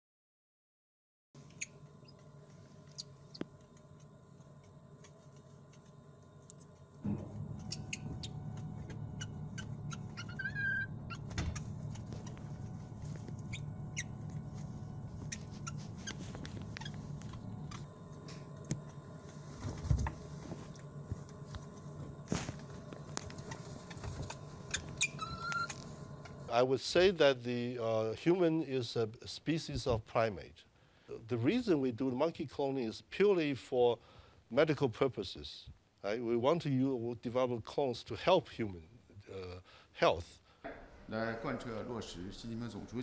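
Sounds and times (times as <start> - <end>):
steady machine hum: 1.4 - 28.9, 40.6 - 43.0
short high squeak: 9.2 - 12.2, 13.4 - 14.6, 15.2 - 17.8, 24.3 - 25.9.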